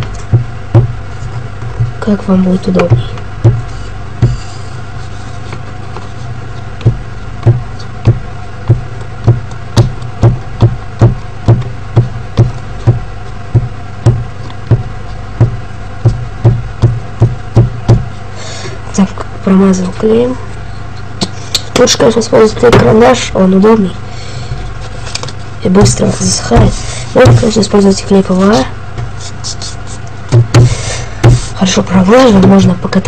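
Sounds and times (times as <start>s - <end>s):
steady low hum: 0.0s - 33.0s
glue stick rubbing on paper: 29.1s - 30.1s.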